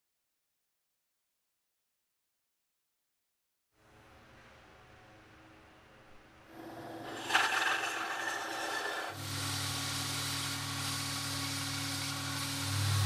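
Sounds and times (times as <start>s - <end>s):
motor hum: 6.5s - 13.0s
belt grinder sanding wood: 7.0s - 13.0s.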